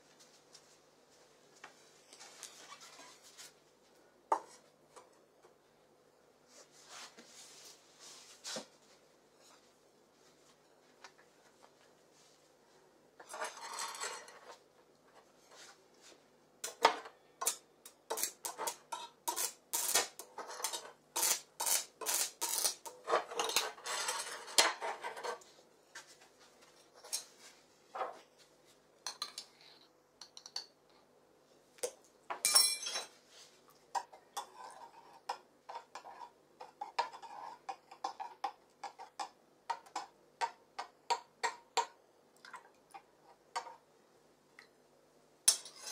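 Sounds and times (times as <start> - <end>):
metal spoon clinking and scraping: 13.2 - 14.6, 20.3 - 25.4, 45.5 - 45.9.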